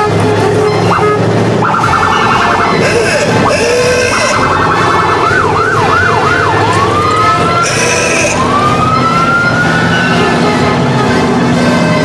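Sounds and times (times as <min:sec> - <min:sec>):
emergency vehicle siren: 0:00.0 - 0:12.0
engines running: 0:00.0 - 0:12.0.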